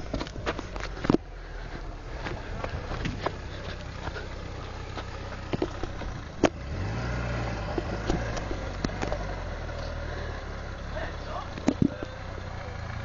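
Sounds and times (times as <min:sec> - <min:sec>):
distant car engine revving: 0:00.0 - 0:13.0
sharp clicks and knocks: 0:05.5 - 0:06.6, 0:07.7 - 0:09.2, 0:11.5 - 0:12.2.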